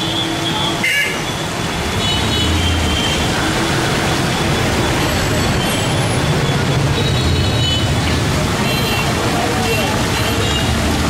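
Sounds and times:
vehicle engines and road noise: 0:00.0 - 0:11.0.

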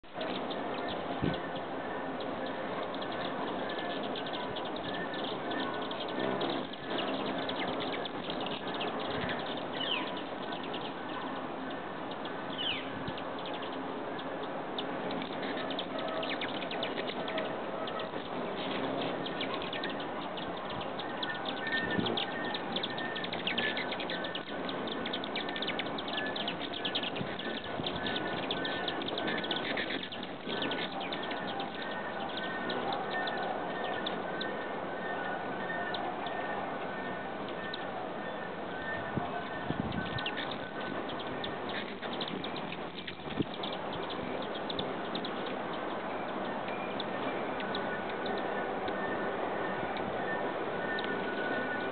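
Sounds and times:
high bird chirps: 0:00.0 - 0:51.9
hummingbird wings whirring: 0:00.1 - 0:51.9.

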